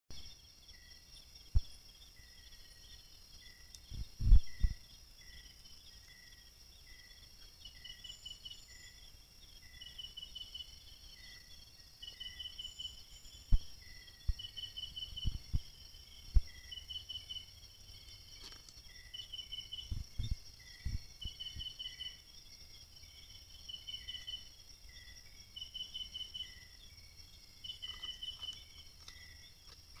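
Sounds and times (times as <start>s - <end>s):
night insects trilling: 0.2s - 30.0s
low thumps and knocks: 1.5s - 1.7s, 3.9s - 4.8s, 15.2s - 16.6s, 19.8s - 21.8s.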